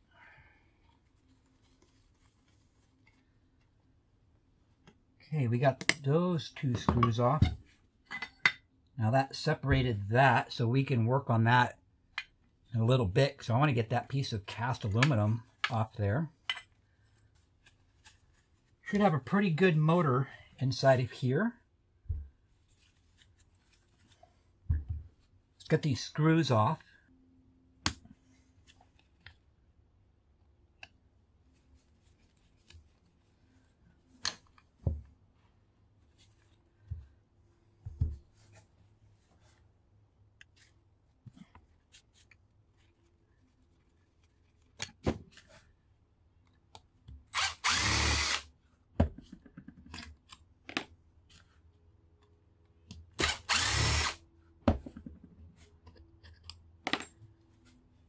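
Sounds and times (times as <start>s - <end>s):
power drill running: 47.4s - 48.4s, 53.2s - 54.2s.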